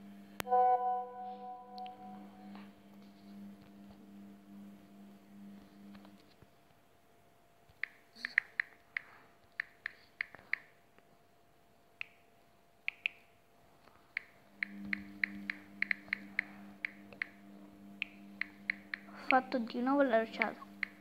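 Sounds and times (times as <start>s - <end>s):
low steady hum: 0.0s - 21.0s
phone screen typing taps: 12.9s - 13.2s, 14.2s - 17.4s, 18.0s - 19.4s, 20.4s - 21.0s.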